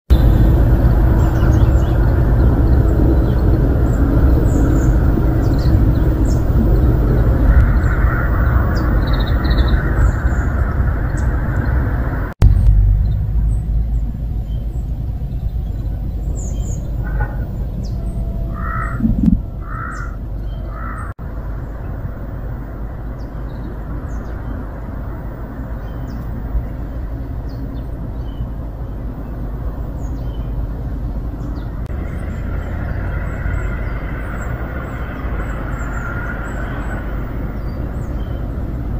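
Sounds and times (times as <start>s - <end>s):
small birds chirping: 0.1s - 11.8s, 12.4s - 22.0s, 22.9s - 38.9s
steady low rumble: 0.1s - 38.9s
crow cawing: 18.4s - 21.1s.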